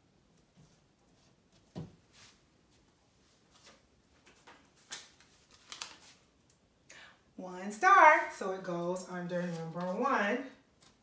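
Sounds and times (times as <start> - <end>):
paper rustling and tapping: 3.7 - 6.2.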